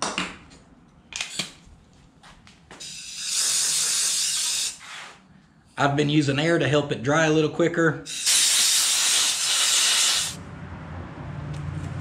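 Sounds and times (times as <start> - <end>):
tools clicking and knocking: 0.0 - 1.6
air blow gun hissing: 2.8 - 5.2, 8.1 - 10.4.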